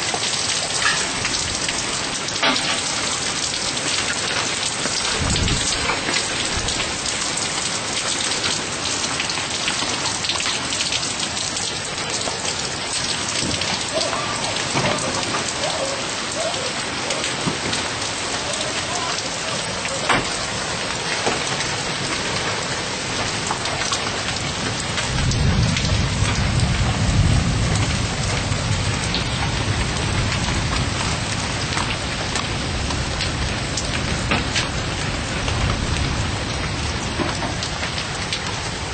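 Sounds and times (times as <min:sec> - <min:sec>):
heavy rain pouring: 0:00.0 - 0:38.9
raindrops ticking: 0:00.0 - 0:38.9
thunder rumbling: 0:00.8 - 0:07.6, 0:12.4 - 0:20.6, 0:23.2 - 0:38.9.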